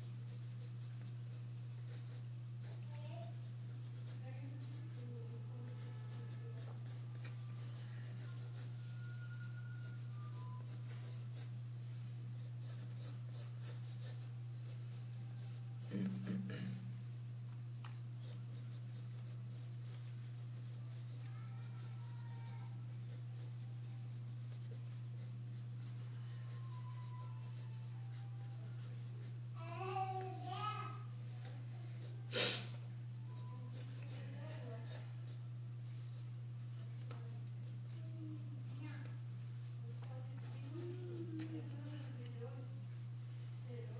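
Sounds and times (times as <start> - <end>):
pencil scratching on paper: 0.0 - 11.7, 12.4 - 16.5, 18.2 - 29.6, 31.2 - 32.2, 33.3 - 39.7, 40.4 - 41.6
steady low hum: 0.0 - 43.9.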